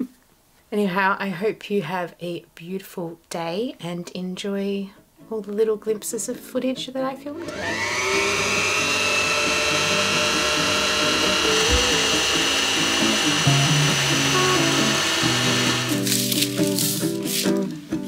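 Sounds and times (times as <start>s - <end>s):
sewing machine motor whine: 7.4s - 15.9s.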